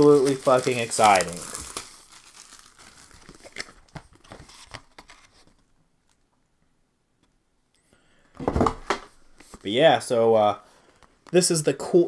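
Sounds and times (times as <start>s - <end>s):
plastic wrap crinkling and tearing: 0.0s - 6.2s.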